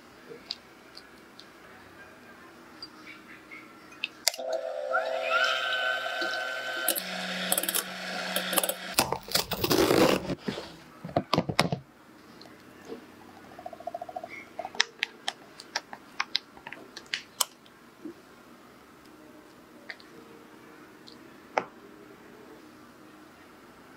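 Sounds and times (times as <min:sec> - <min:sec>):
electric mixer whining: 0:04.3 - 0:09.0.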